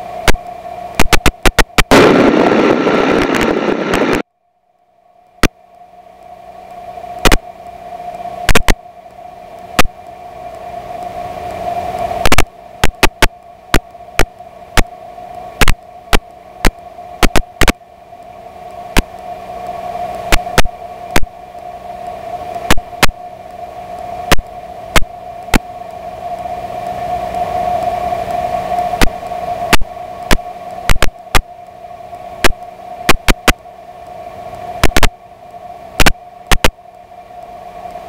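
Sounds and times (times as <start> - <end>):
airplane engine hum: 0.0 - 38.0
loud sharp clicks: 1.0 - 2.3, 8.5 - 8.8, 32.4 - 33.6, 34.8 - 35.1, 36.0 - 36.8.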